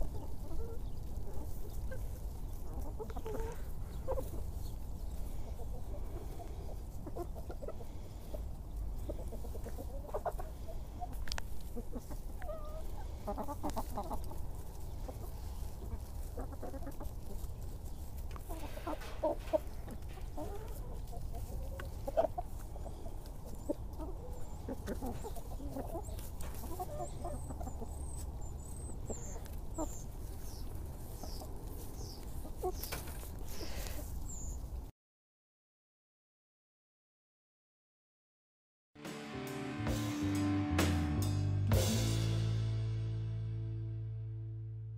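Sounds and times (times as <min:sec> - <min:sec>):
chickens clucking: 0:00.0 - 0:34.9.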